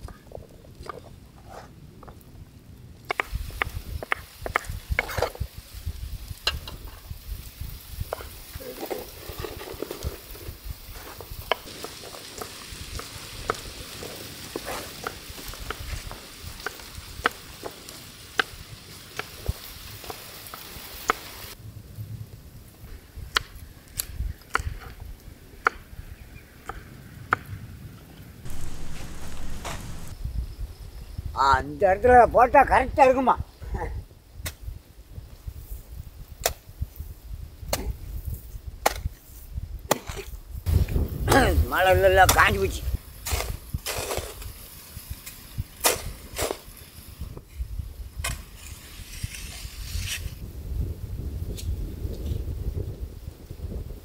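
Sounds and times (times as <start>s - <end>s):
food sizzling in a pot: 3.1s - 21.6s, 28.5s - 30.2s, 40.6s - 50.3s.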